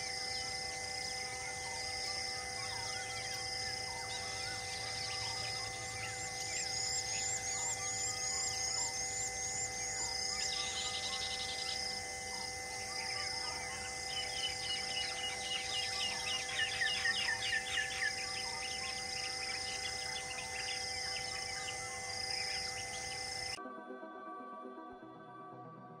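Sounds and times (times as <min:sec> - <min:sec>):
insects droning and pulsing: 0:00.0 - 0:23.6
bird call with falling notes: 0:13.1 - 0:23.6.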